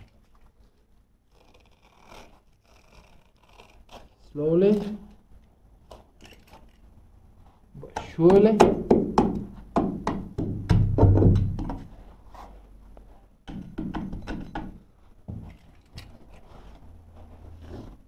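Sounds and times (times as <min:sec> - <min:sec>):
hands knocking on carpet: 0:08.6 - 0:11.9.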